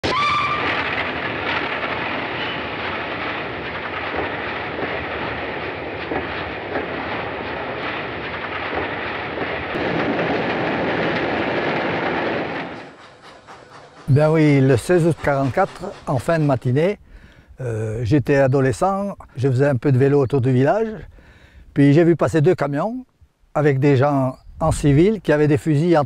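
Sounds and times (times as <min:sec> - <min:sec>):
steam train whistle: 0:00.0 - 0:00.8
train rattling and clattering: 0:00.0 - 0:17.4.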